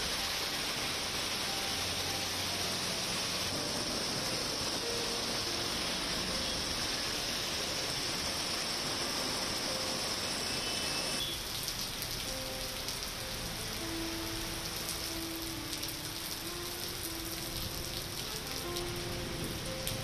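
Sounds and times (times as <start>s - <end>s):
rain splashing on surfaces: 0.0s - 20.0s
raindrop ticks: 11.4s - 20.0s.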